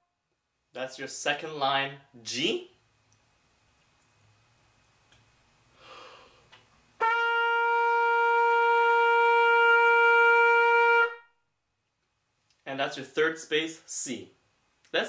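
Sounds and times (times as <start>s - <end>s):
quick breath: 5.7s - 6.6s
trumpet holding a note: 7.0s - 11.3s.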